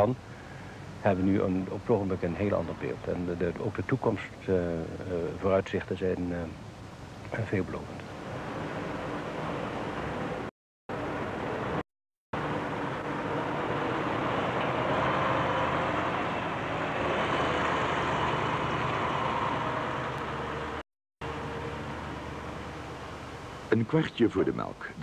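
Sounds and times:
machinery hum: 12.4 - 24.9.

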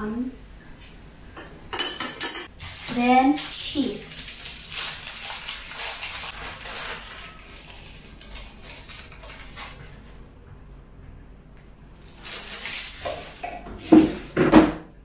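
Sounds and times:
plastic wrapper crinkling: 2.6 - 10.1, 12.0 - 14.4.

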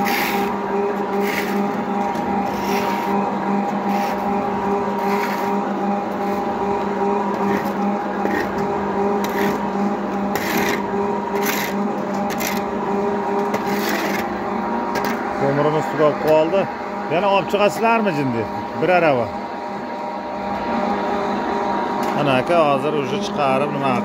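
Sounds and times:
extruder press humming: 0.0 - 24.0
coal briquettes scraping: 1.1 - 1.7, 2.5 - 3.2.

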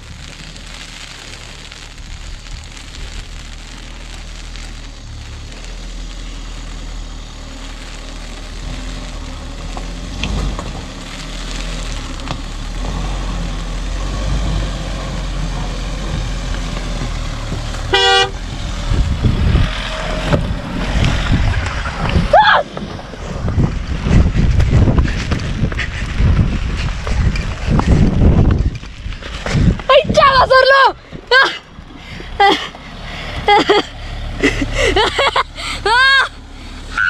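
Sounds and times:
car engine under load: 0.0 - 37.0
car horn toot: 17.9 - 18.4.

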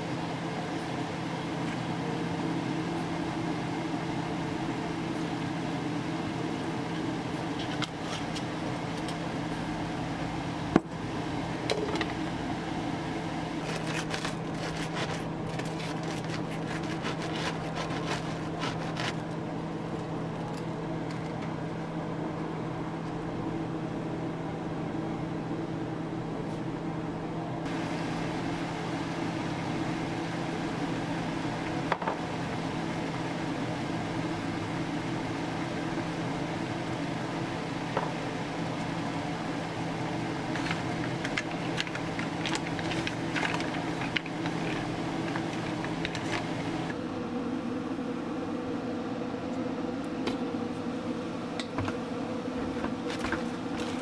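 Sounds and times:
mechanical hum: 0.0 - 54.0
knife sawing crunchy bread: 13.6 - 19.3.

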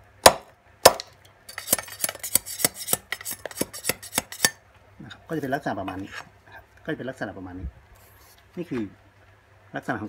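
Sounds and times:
knife chopping into bamboo: 0.2 - 4.6
blade rasping on wood: 1.5 - 4.6.

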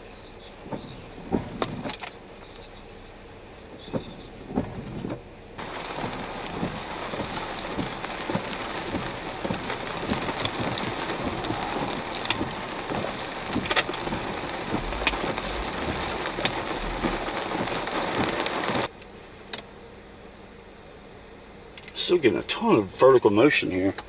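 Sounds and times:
rain on a vehicle windshield: 0.6 - 2.6, 3.8 - 18.9.

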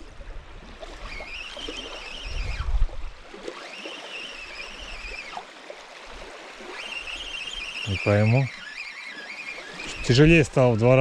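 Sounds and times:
fishing reel whirring: 0.9 - 5.6, 6.5 - 10.9
wind gusts on microphone: 1.8 - 3.3.

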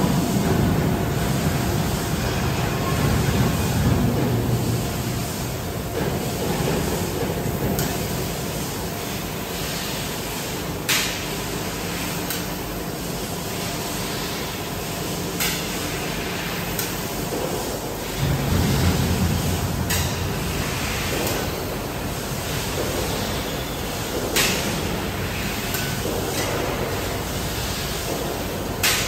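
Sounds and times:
laser cutter machine hum: 0.0 - 29.0
low rumble: 18.2 - 22.1.

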